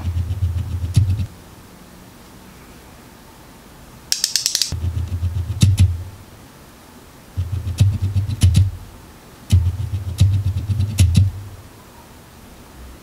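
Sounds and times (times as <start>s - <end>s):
sharp clicks: 4.1s - 4.8s.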